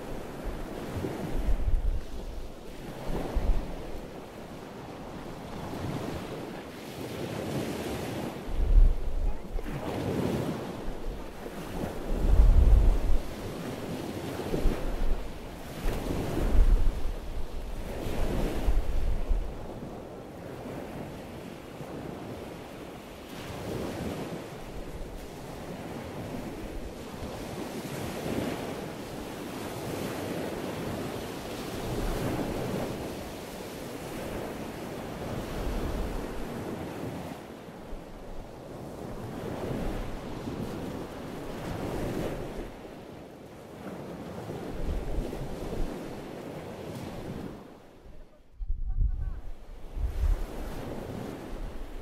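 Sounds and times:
sea surf washing in: 0.0s - 19.9s, 22.0s - 48.4s, 49.4s - 52.0s
wind buffeting microphone: 0.0s - 20.0s, 43.8s - 52.0s.

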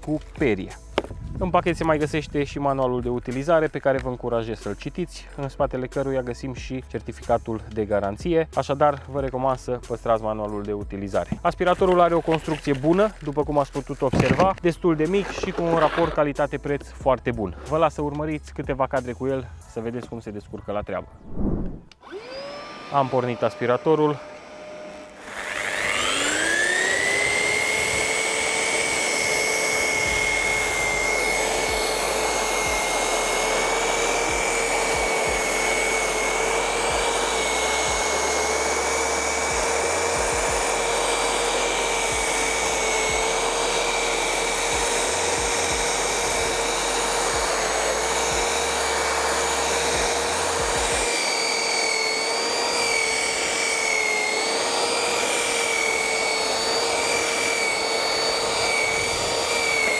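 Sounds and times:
cordless vacuum whine: 0.0s - 1.3s, 21.2s - 59.9s.

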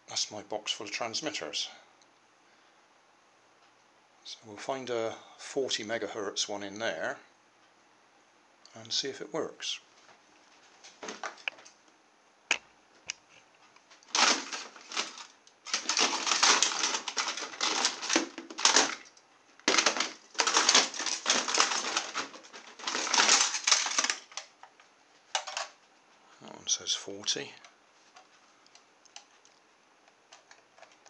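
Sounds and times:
plastic transmitters clattering: 14.0s - 25.8s.

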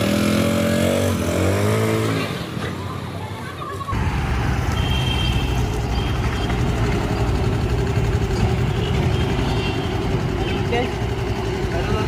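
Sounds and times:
engine idling: 5.0s - 12.0s.

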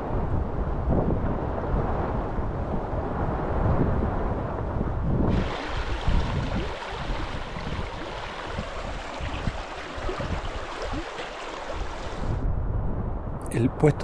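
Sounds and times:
wind buffeting microphone: 0.0s - 14.0s
mountain stream running: 5.3s - 12.4s.

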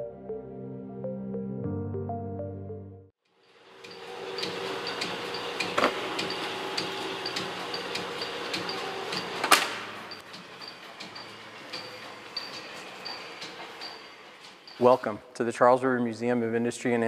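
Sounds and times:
line shaft machinery clattering: 3.8s - 15.2s.

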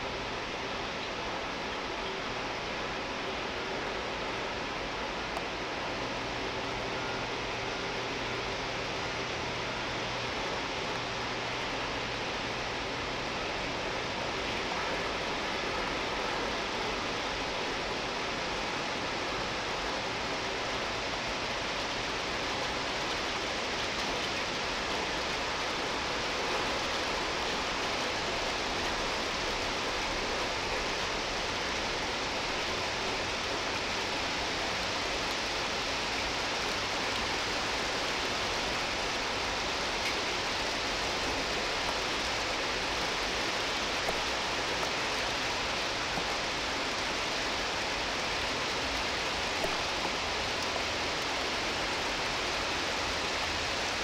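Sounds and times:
heavy rain hissing: 0.0s - 54.0s.

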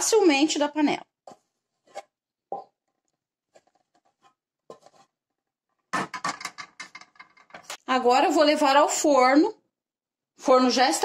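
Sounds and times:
wooden spoon scraping pot: 1.1s - 7.8s.

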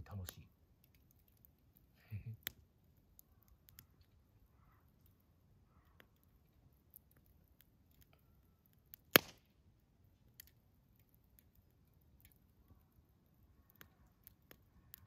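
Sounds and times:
campfire crackling: 0.0s - 15.0s
loud sharp pop: 9.1s - 9.4s.

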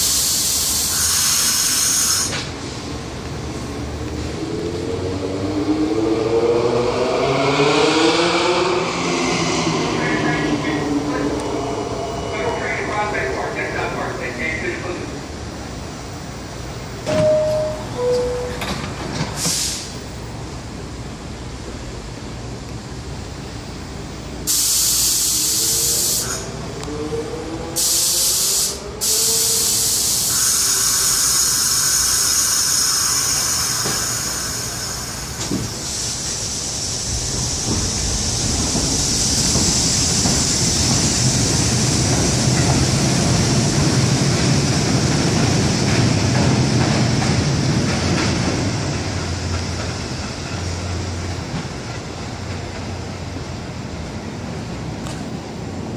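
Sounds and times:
compressed air hiss: 0.0s - 2.5s, 19.4s - 20.0s, 24.5s - 26.5s, 27.8s - 41.6s
train wheels rumbling on rails: 0.0s - 55.9s.

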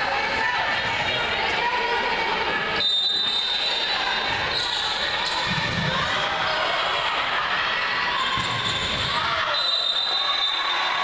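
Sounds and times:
crowd noise: 0.0s - 11.0s.

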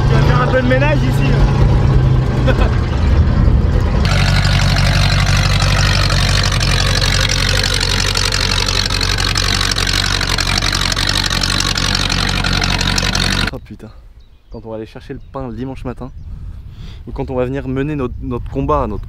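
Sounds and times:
truck engine idling: 2.6s - 13.5s.

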